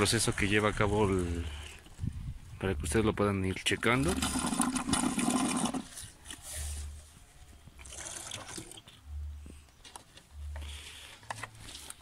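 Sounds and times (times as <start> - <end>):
liquid splashing and trickling: 4.0 - 5.9, 7.8 - 9.0.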